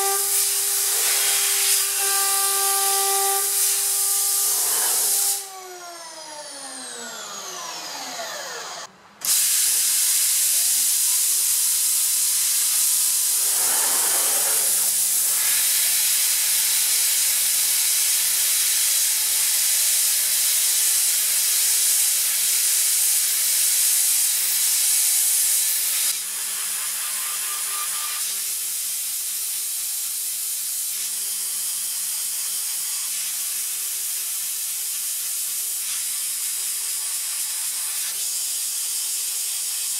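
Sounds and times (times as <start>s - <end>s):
mist coolant air hiss: 0.0s - 5.4s, 9.2s - 26.2s.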